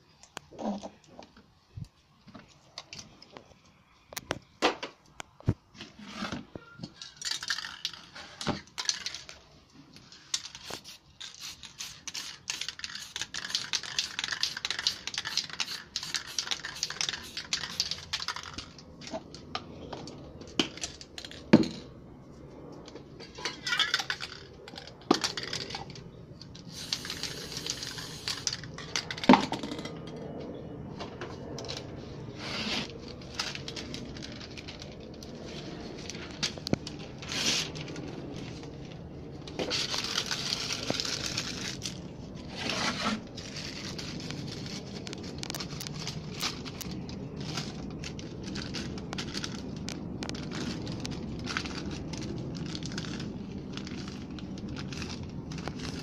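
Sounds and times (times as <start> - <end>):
spray can rattling: 10.3 - 18.8, 26.6 - 29.8.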